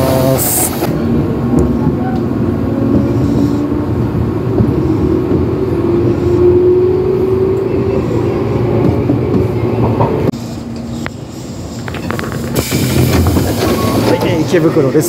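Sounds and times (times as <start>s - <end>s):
train running rumble: 0.0s - 15.0s.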